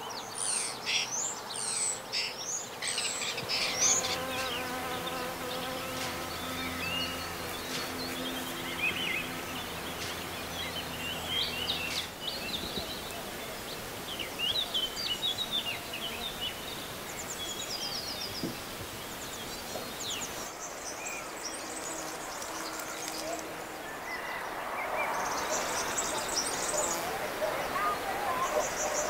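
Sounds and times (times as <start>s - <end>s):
small birds chirping and trilling: 0.0s - 29.0s
bees buzzing: 3.0s - 17.2s, 21.3s - 29.0s.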